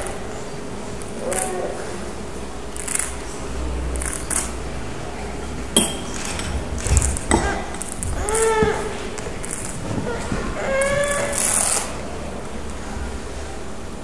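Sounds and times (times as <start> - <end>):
crystal bowl glassy clinks: 5.8 - 6.2.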